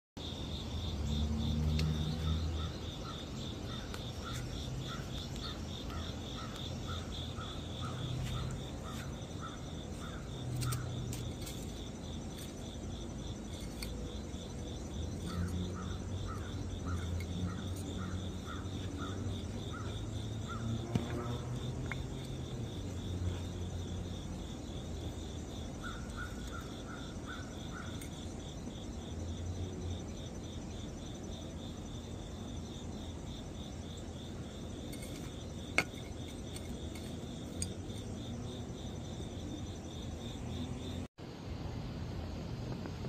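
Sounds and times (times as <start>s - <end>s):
high insect chirr: 0.2s - 43.0s
lower insect chirp: 0.2s - 43.0s
rustle: 1.5s - 19.9s, 33.9s - 39.0s.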